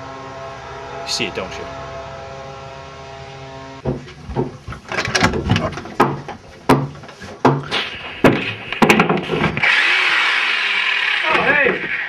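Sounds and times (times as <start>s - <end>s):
steady hum: 0.0s - 9.7s
knocks and bangs: 3.8s - 9.6s.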